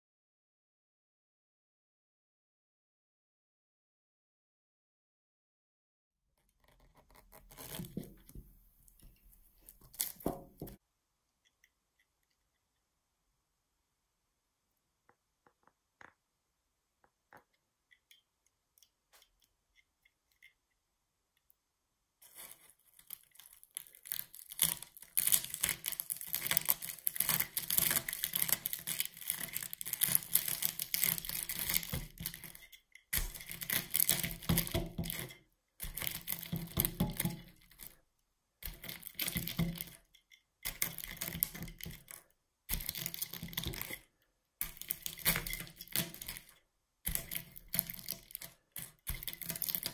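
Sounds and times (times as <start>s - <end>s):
popcorn crunching and crackling: 22.2s - 38.0s, 38.6s - 40.0s, 40.7s - 44.0s, 44.6s - 46.5s, 47.1s - 49.9s.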